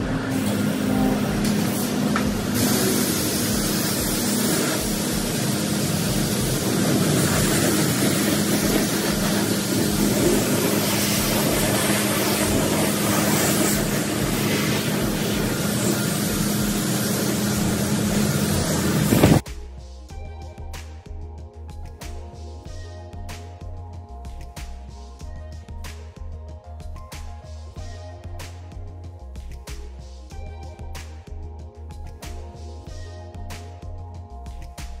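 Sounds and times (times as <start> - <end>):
high-pressure water spraying: 0.0 - 19.4.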